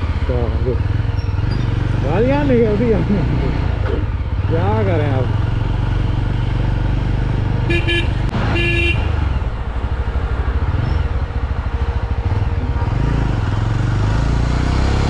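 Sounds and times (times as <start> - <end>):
motorcycle engine running: 0.0 - 15.0
vehicle horn toots: 7.6 - 9.1.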